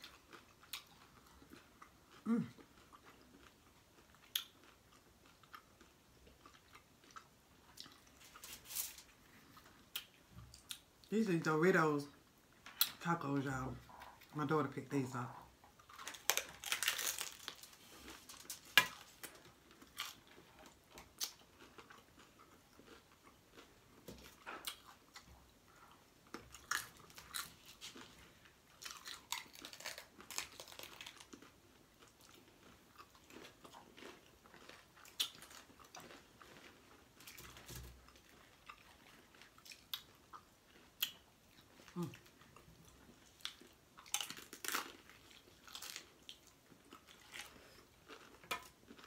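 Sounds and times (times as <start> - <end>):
chewing: 0.0 - 10.8, 15.3 - 49.0
crunchy taco shell bites: 15.8 - 25.2, 26.3 - 41.3, 43.2 - 49.0.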